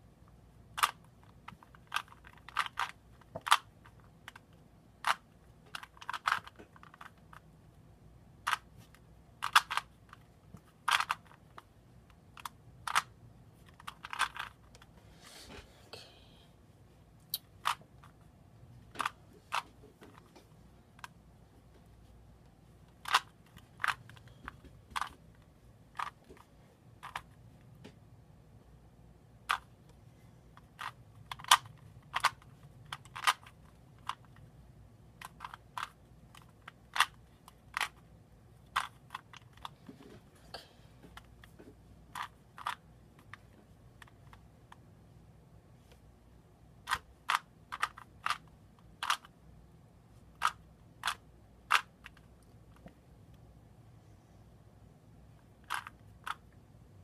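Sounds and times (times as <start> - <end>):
puzzle cube layers clicking: 0.7 - 7.5, 8.4 - 14.9, 22.9 - 27.4, 29.4 - 29.9, 30.5 - 34.5, 35.1 - 39.8, 41.1 - 44.8, 46.8 - 49.4, 50.3 - 52.9, 55.5 - 56.6.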